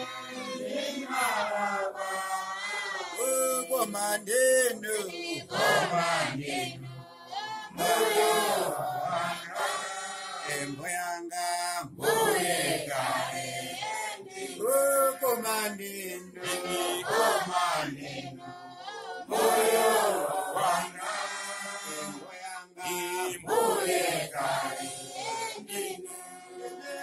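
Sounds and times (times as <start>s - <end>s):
men singing together: 0.0s - 27.0s.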